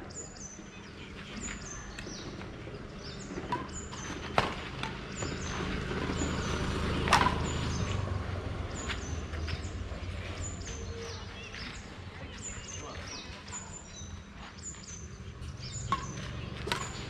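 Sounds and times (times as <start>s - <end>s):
racket hitting shuttlecock: 3.4s - 5.6s, 7.0s - 7.6s, 15.9s - 17.0s.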